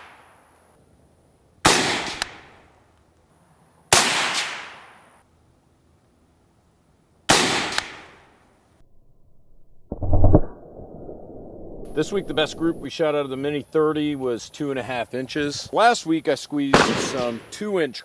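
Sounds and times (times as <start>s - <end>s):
rifle shots with echo: 1.6s - 2.6s, 3.9s - 4.9s, 7.3s - 8.1s, 16.7s - 17.7s.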